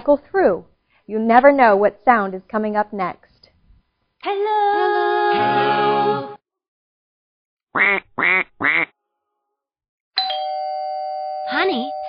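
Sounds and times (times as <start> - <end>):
duck quacks: 7.8 - 8.9
ding-dong doorbell chime: 10.2 - 12.0.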